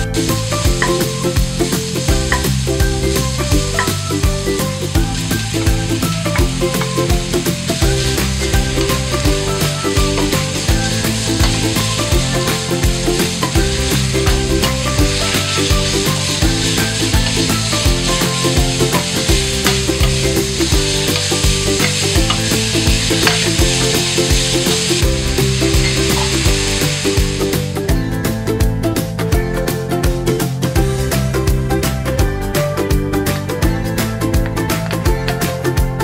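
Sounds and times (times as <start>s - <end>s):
meat sizzling in hot oil: 0.0s - 28.0s
background music: 0.0s - 36.0s
wooden spatula stirring: 5.5s - 26.6s.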